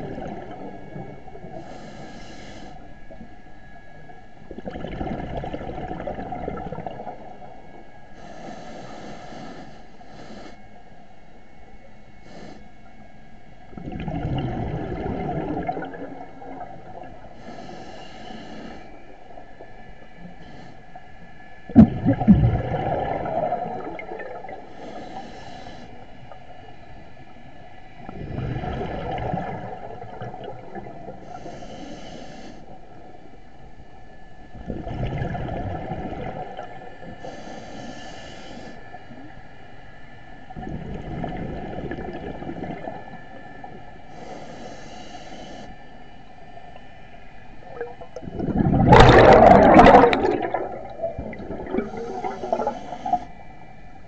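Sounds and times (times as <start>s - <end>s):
regulator hissing inhalations: 1.6s - 2.9s, 8.2s - 10.8s, 12.2s - 12.8s, 17.3s - 19.2s, 20.3s - 21.0s, 24.6s - 26.3s, 31.2s - 32.8s, 37.1s - 39.1s, 44.1s - 46.0s, 51.8s - 53.4s
bubbling exhalations: 4.6s - 7.2s, 13.7s - 17.1s, 21.7s - 25.0s, 28.1s - 31.0s, 34.6s - 36.7s, 47.6s - 53.3s.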